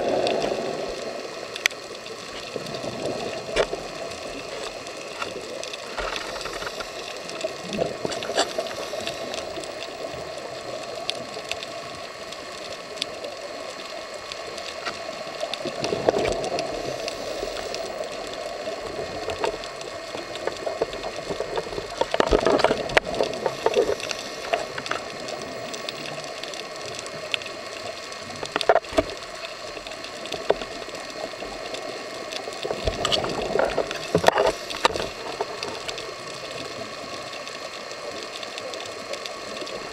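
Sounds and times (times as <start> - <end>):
exhaled bubbles gushing: 0.0 - 11.9, 28.2 - 37.3
regulator hiss underwater: 0.0 - 39.9.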